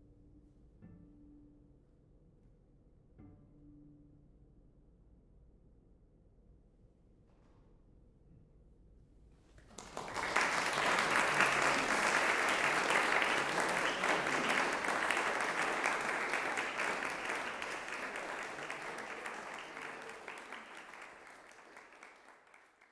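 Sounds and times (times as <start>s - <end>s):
audience applauding: 9.6s - 22.9s.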